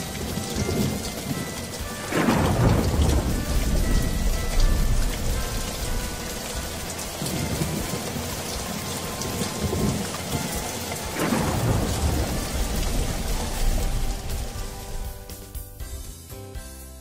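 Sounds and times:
steady rain hiss: 0.0 - 16.3
low rolls of thunder: 0.1 - 1.4, 2.0 - 15.3.

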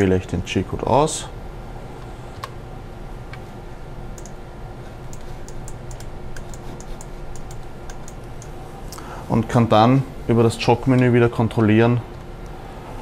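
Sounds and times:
steady low hum: 0.0 - 13.0
computer keyboard clicking: 4.2 - 4.4, 5.1 - 8.5.

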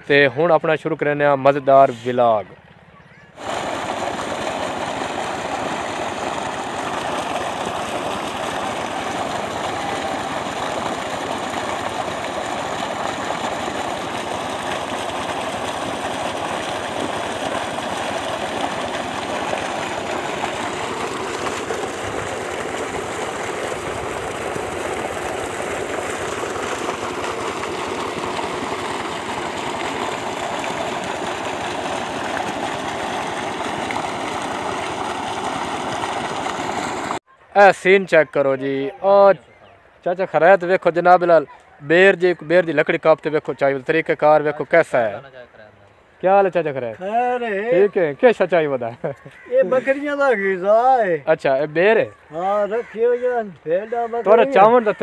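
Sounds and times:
water gushing from pipe: 3.4 - 37.2, 47.3 - 48.8, 53.6 - 55.0
water splashing into pool: 3.4 - 37.3.

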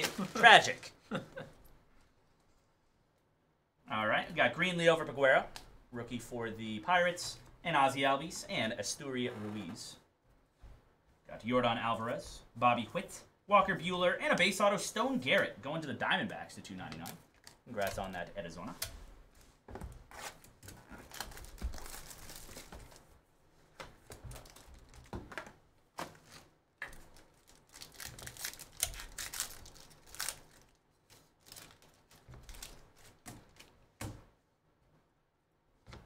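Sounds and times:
foil pack crinkling and tearing: 0.0 - 0.8, 20.2 - 23.1, 26.4 - 33.7
cards rustling and clicking: 16.8 - 23.1, 23.7 - 34.2.

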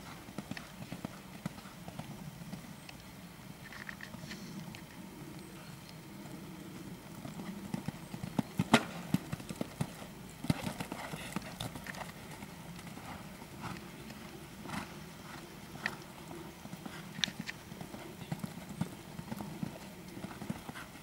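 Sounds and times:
horse hoofbeats on sand: 7.3 - 21.0.

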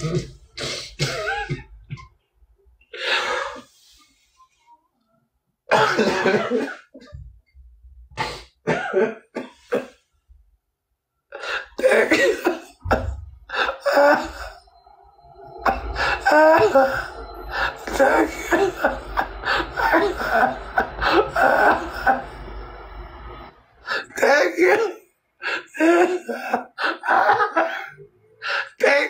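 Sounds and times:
person's harsh cough-like outbursts: 0.0 - 1.7, 5.7 - 7.1, 11.4 - 14.6, 15.6 - 22.2.

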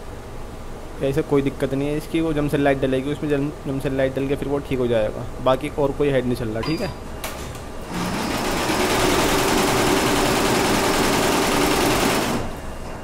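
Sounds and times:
embroidery machine running: 7.9 - 12.9.

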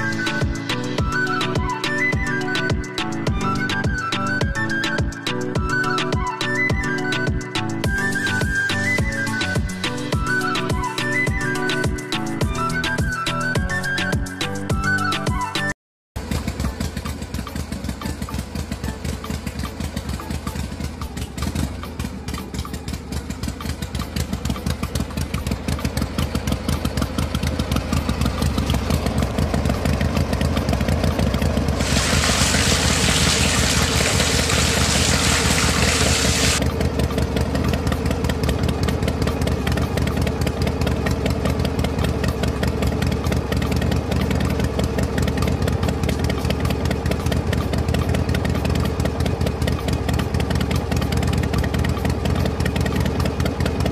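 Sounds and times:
loud hiss: 31.8 - 36.6
small model engine running: 31.8 - 36.6.

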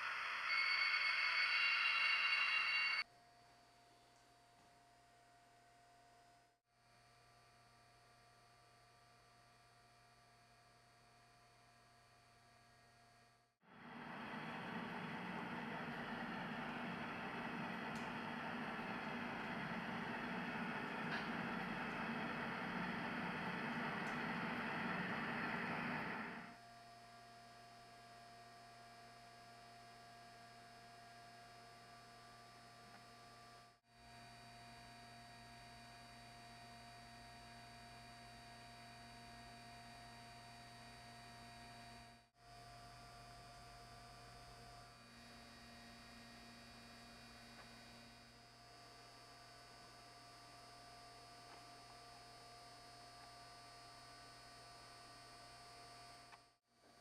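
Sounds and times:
thin steady tone: 0.0 - 3.0.

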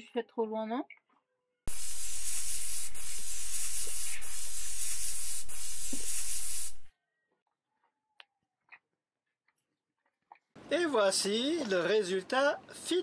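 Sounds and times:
spray paint can hissing: 1.7 - 6.9.

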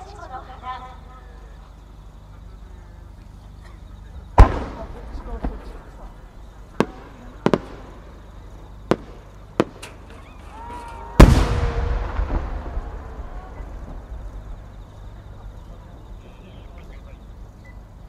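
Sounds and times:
firework cracks: 4.3 - 14.7
firework shell boom: 4.4 - 5.8, 11.2 - 14.4.

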